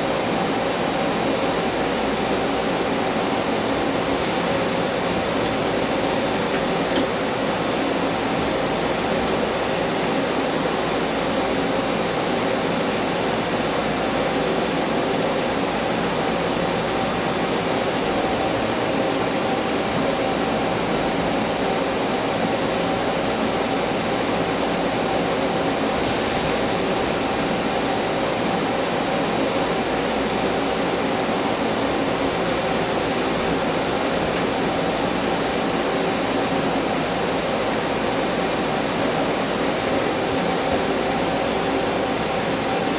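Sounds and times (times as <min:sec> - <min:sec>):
machine hiss: 0:38.6 - 0:42.9.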